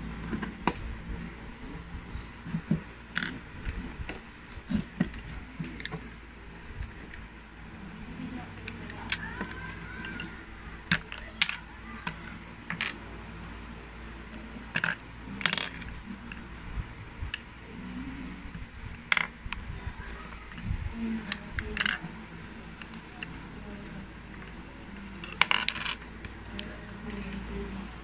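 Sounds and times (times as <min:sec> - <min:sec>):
plastic bricks clicking: 0:10.9 - 0:13.0, 0:14.7 - 0:15.9, 0:25.2 - 0:27.3.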